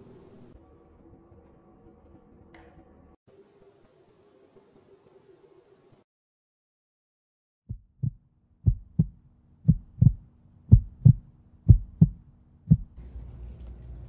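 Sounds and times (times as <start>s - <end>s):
heartbeat thumps: 7.7s - 13.0s.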